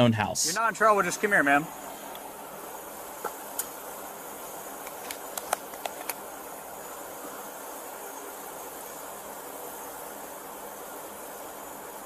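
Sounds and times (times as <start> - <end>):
background hiss: 0.0 - 12.0
sharp clicks: 4.8 - 6.2.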